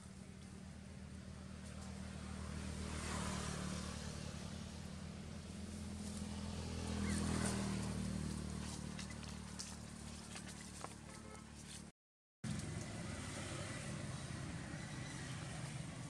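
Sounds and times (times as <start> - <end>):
motor vehicle engine hum: 0.0 - 16.0
dry leaves crackling underfoot: 5.4 - 11.9.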